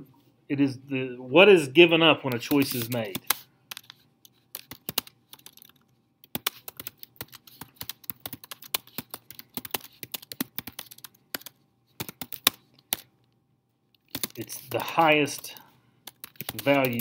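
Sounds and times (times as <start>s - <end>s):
typing on a keyboard: 2.3s - 13.1s, 14.0s - 14.5s, 15.3s - 17.0s.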